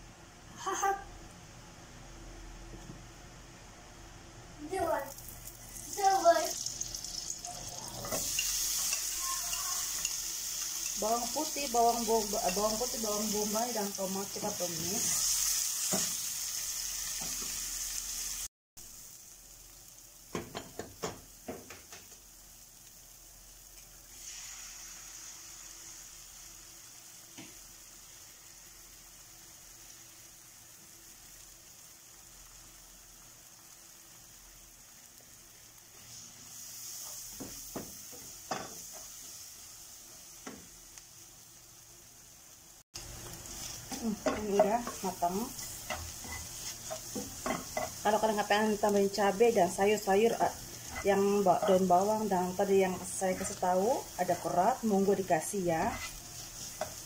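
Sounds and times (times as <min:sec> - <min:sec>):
vegetables sizzling in a frying pan: 0:00.0 - 0:57.0
spatula scraping pan: 0:43.4 - 0:48.3, 0:50.5 - 0:52.0, 0:52.8 - 0:54.8, 0:55.7 - 0:57.0.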